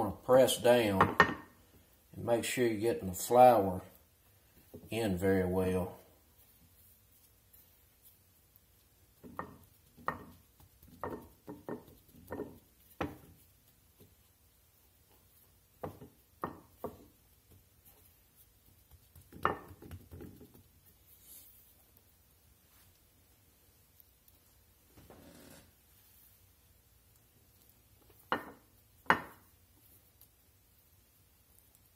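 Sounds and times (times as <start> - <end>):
hand patting meat in flour: 6.4 - 21.7.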